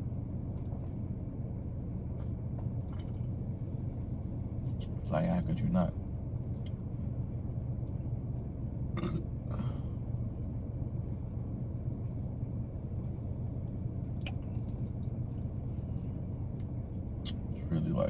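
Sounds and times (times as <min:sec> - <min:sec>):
low rumble inside car: 0:00.0 - 0:18.0
man burping: 0:09.0 - 0:09.6
soft throat sound: 0:09.0 - 0:09.8.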